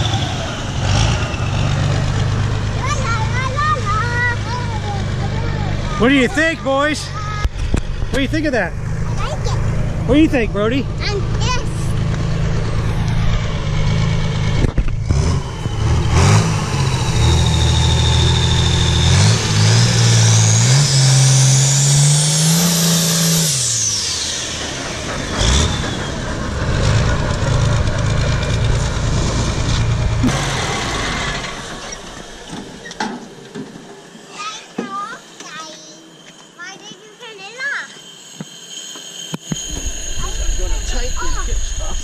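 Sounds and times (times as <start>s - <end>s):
diesel tractor engine revving: 0.0s - 36.8s
turbo whistle: 35.4s - 42.0s.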